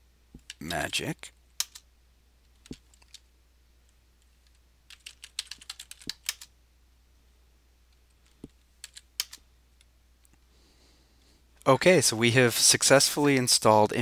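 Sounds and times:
keyboard keystrokes: 4.9s - 6.5s.

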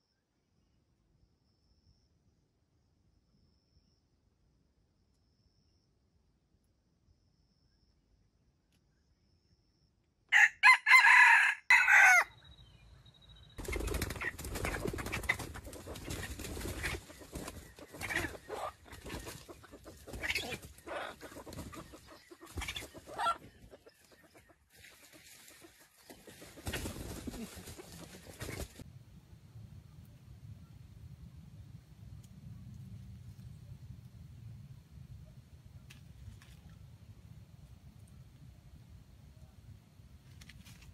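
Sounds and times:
rooster crowing: 10.3s - 12.4s
soft clucks: 14.6s - 28.8s.

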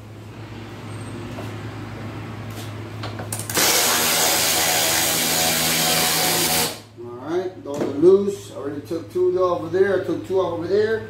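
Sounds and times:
impact wrench running: 3.3s - 6.9s.

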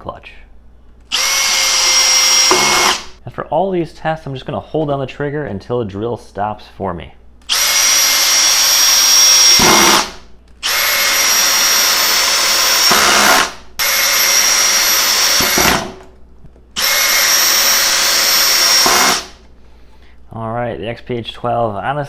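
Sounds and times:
drill clutch slipping: 1.0s - 3.1s, 7.5s - 16.0s, 16.8s - 19.3s
cordless drill driving screws: 1.1s - 3.1s, 7.5s - 16.0s, 16.8s - 19.4s.

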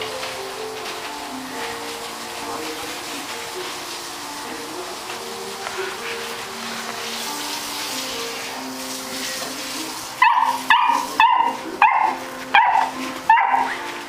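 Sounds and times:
background music with held notes: 0.0s - 14.0s
puppy barking: 10.2s - 14.0s.

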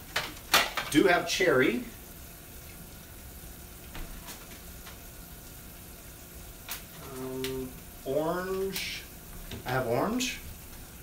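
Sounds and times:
syrup boiling with steady hiss: 0.0s - 11.0s
man humming: 7.0s - 7.8s.

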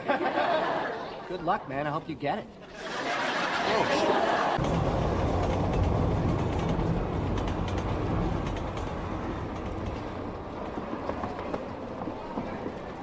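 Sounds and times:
subway train rumbling and rattling: 4.6s - 13.0s.

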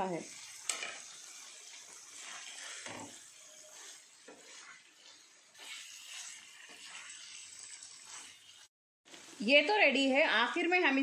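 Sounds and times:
food sizzling in a pan: 0.0s - 11.0s
spatula scraping pan: 0.2s - 8.7s.

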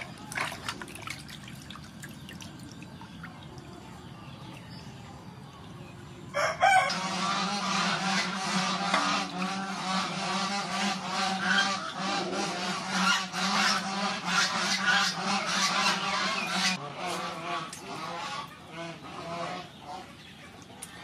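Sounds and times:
poultry honking: 6.4s - 20.1s.

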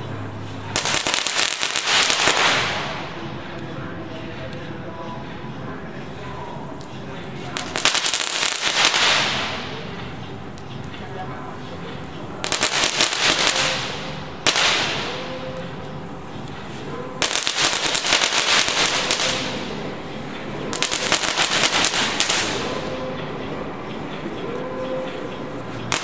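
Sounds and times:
firework crackling: 0.6s - 3.5s, 6.1s - 23.4s
sharp firework crack: 0.8s - 3.2s, 7.6s - 9.9s, 12.4s - 15.4s, 17.2s - 19.8s, 20.7s - 22.7s.

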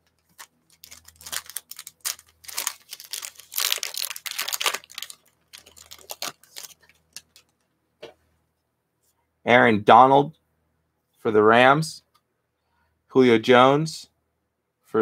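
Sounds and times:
foil wrapper crackling: 0.0s - 7.5s.

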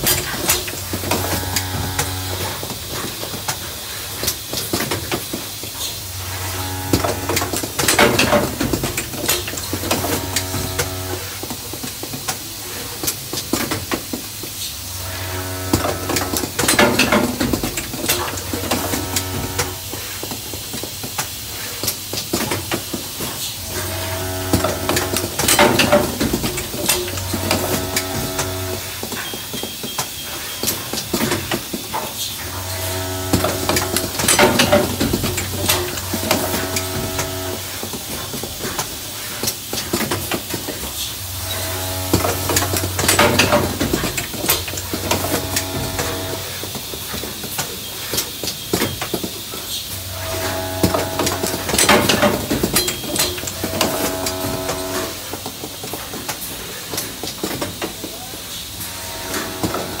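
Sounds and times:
pneumatic hisses and clacks: 0.0s - 15.0s, 15.7s - 60.0s
vibratory bowl feeder humming: 0.7s - 2.6s, 6.2s - 7.5s, 9.8s - 11.3s, 18.4s - 19.8s, 23.6s - 28.9s, 32.5s - 37.7s, 41.2s - 46.5s, 50.0s - 55.2s, 58.9s - 60.0s.

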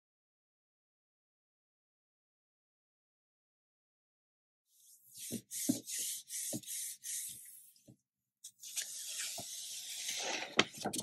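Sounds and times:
hands rubbing paper: 4.8s - 7.7s, 8.6s - 10.5s.

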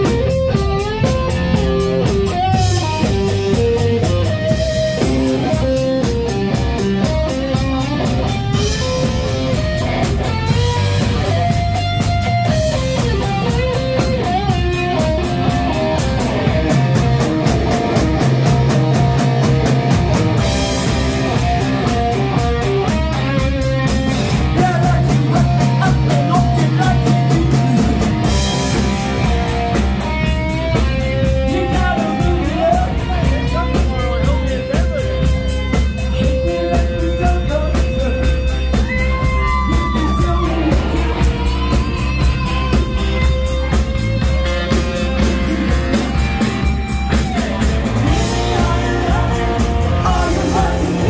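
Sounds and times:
drum kit beat: 0.0s - 51.0s
electric guitars: 0.0s - 51.0s
person singing: 24.3s - 28.2s, 31.2s - 35.0s, 36.0s - 42.9s, 47.1s - 51.0s.

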